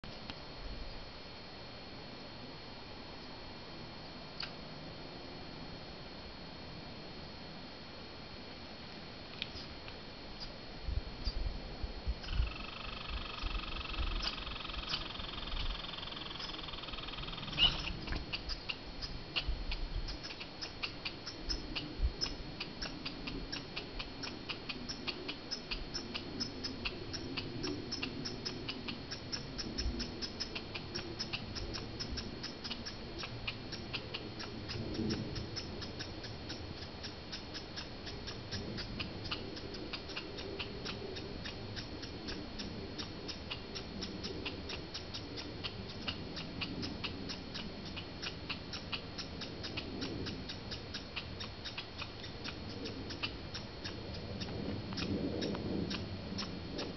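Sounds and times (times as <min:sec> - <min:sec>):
squirrel calling high ticks: 0:12.2 - 0:56.9.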